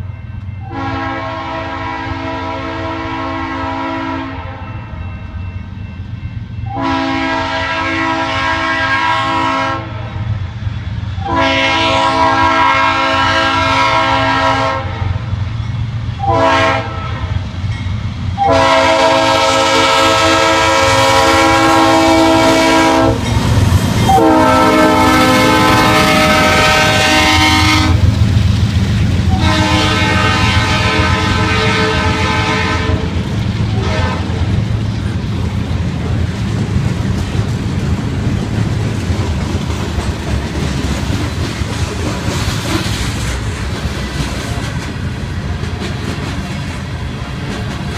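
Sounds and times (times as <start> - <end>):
locomotive air horn blasts: 0.6 - 5.0, 6.7 - 10.2, 11.2 - 15.2, 16.2 - 17.4, 18.4 - 23.2, 24.1 - 28.2, 29.3 - 34.5
freight cars rumbling and clicking: 22.5 - 24.7, 31.0 - 47.9.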